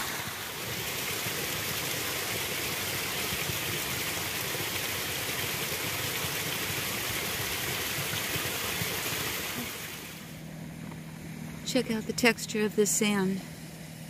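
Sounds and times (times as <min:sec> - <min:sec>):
forest stream rushing: 0:00.0 - 0:10.4.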